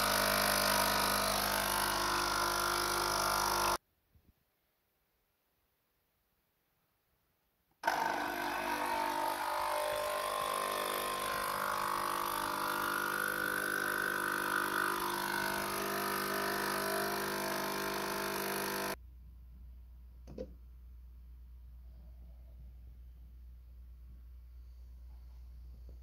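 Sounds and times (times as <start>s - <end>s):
coffee machine pump humming: 0.0s - 3.8s, 7.8s - 19.0s.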